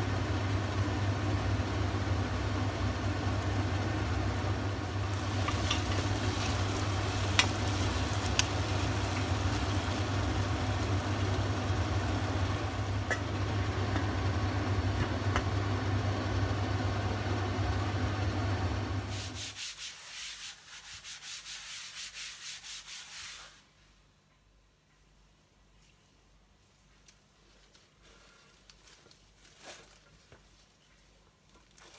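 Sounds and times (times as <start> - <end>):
appliance hum with fan rush: 0.0 - 19.7.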